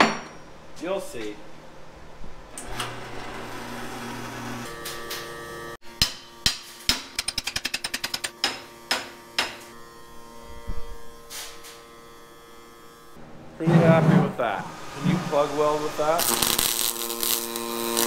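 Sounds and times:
drill press motor humming: 0:02.5 - 0:05.8.

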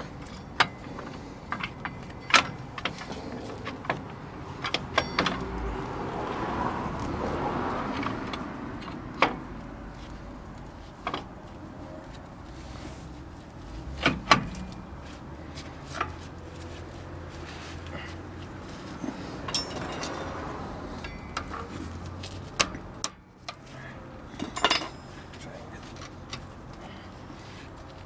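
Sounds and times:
metal parts clinking: 0:19.5 - 0:20.4, 0:24.2 - 0:26.0.

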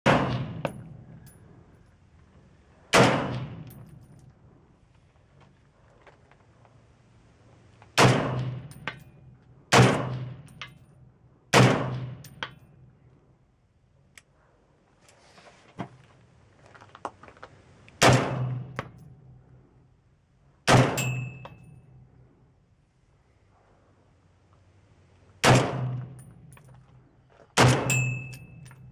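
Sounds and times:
rifle shots with ringing tail: 0:00.0 - 0:01.6, 0:02.9 - 0:04.1, 0:08.0 - 0:10.6, 0:11.5 - 0:12.9, 0:18.0 - 0:19.2, 0:20.6 - 0:22.0, 0:25.4 - 0:26.5, 0:27.6 - 0:28.9.

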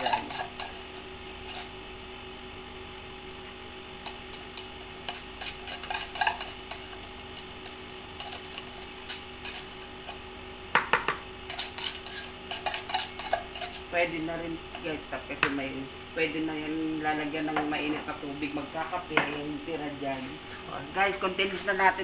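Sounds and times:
metal utensil scraping tin can: 0:00.0 - 0:01.7, 0:04.0 - 0:10.2, 0:11.5 - 0:13.9
steady low hum: 0:00.0 - 0:22.0.

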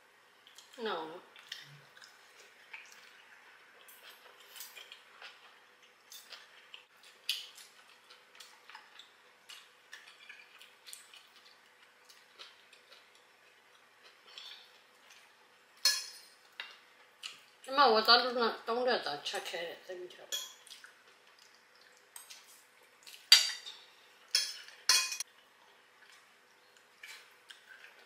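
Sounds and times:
cutlery clinking on plates: 0:15.8 - 0:16.7, 0:23.3 - 0:25.2.

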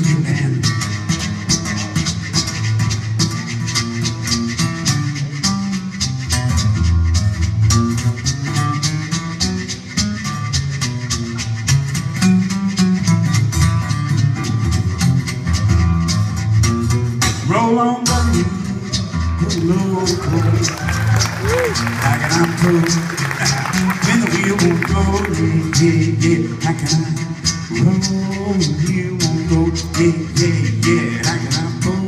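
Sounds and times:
fingerstyle acoustic guitar: 0:00.0 - 0:32.0.

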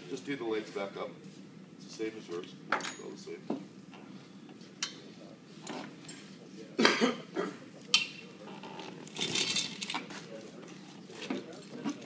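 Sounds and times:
metal harness buckles clinking: 0:08.7 - 0:10.0.

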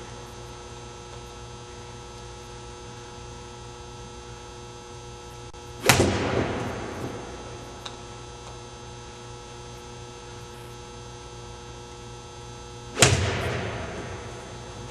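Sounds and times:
electrical hum: 0:00.0 - 0:14.9
golf club hitting ball: 0:12.9 - 0:14.9.

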